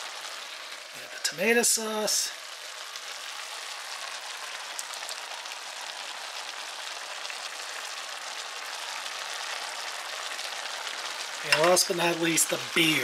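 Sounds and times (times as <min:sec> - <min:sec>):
food sizzling in a pan: 0:00.0 - 0:13.0
faint crackles: 0:02.1 - 0:12.2.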